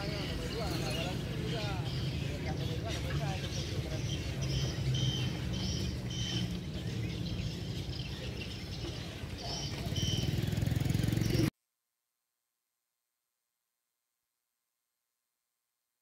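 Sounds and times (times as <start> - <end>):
birds chirping: 0.0 - 11.5.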